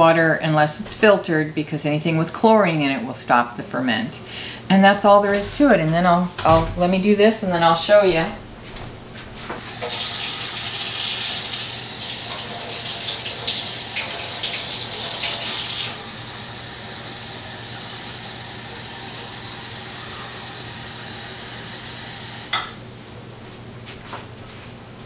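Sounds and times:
water running from faucet: 0:09.6 - 0:22.5.

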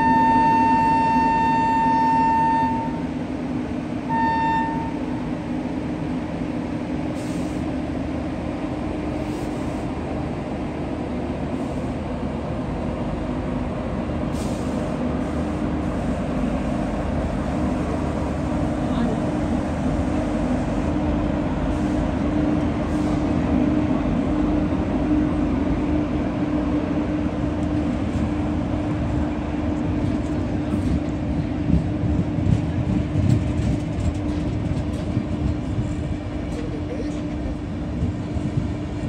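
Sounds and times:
locomotive horn blasts: 0:00.0 - 0:03.1, 0:04.1 - 0:05.2
locomotive hum: 0:00.0 - 0:39.0
train wheels rumbling on rail: 0:00.0 - 0:39.0.

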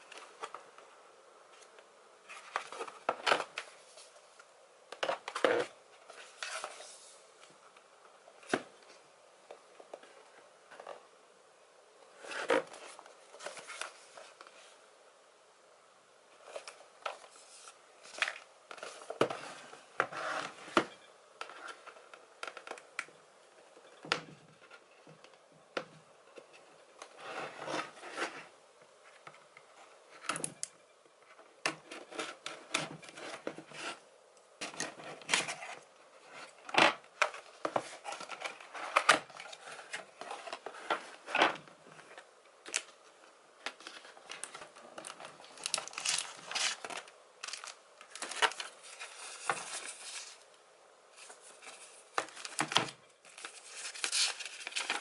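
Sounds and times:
cardboard scraping and rustling: 0:16.4 - 0:20.9.

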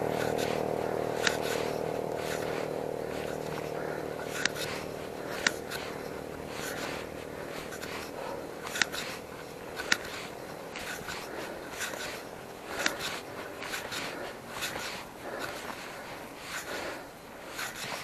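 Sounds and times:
bicycle riding on road: 0:00.0 - 0:18.0
sharp clicks: 0:03.1 - 0:15.8.

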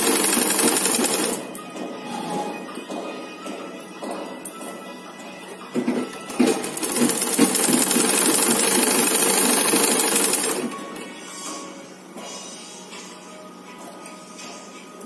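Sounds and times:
sewing machine stitching: 0:00.0 - 0:01.4, 0:06.3 - 0:10.8.

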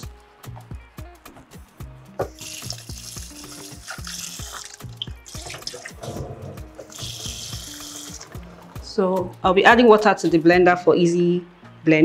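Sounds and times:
background music with beat: 0:00.0 - 0:11.8
tap running into sink: 0:02.2 - 0:08.6.

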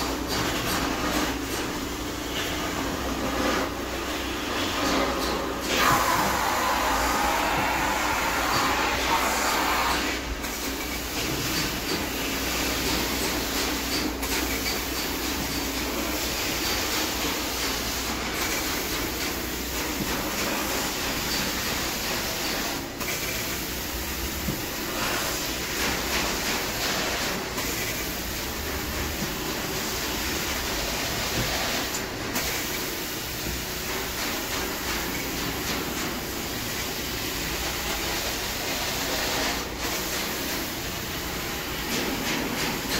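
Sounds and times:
carpet extraction machine running: 0:00.0 - 0:42.9.

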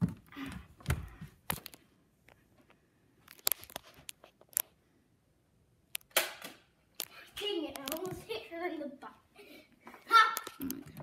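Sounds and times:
sharp clicks and knocks: 0:07.7 - 0:08.2.

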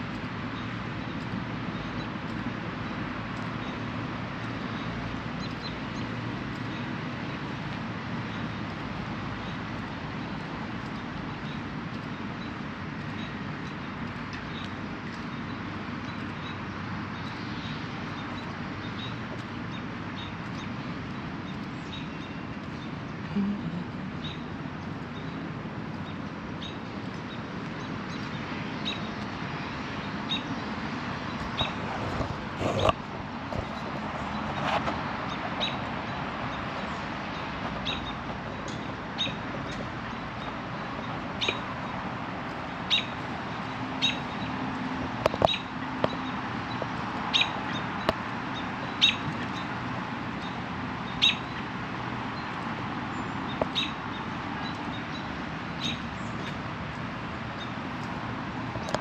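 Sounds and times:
park background noise: 0:00.0 - 0:59.0
small birds chirping: 0:00.0 - 0:59.0.

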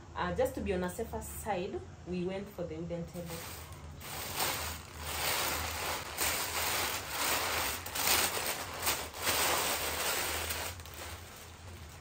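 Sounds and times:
paper and plastic crinkling: 0:03.2 - 0:12.0.

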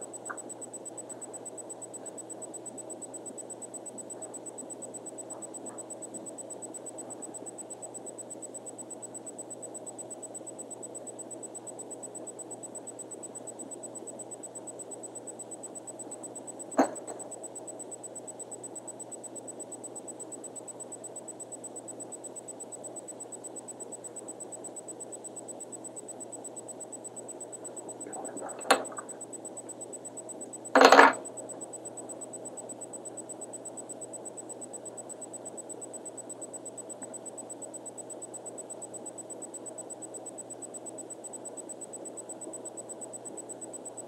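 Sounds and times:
steady background hum: 0:00.0 - 0:44.0
small tool clattering on bench: 0:28.5 - 0:29.1, 0:30.8 - 0:31.2.

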